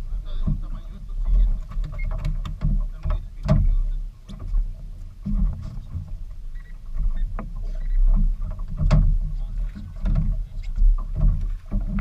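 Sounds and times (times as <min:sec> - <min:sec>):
boat engine low rumble: 0:00.0 - 0:12.0
sharp knocks: 0:01.7 - 0:04.6, 0:07.0 - 0:12.0.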